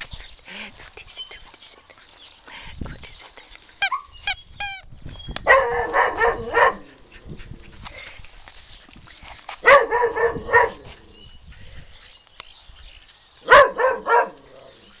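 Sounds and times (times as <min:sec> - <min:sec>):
dog barking: 0:05.5 - 0:06.9, 0:09.6 - 0:10.8, 0:13.4 - 0:14.4.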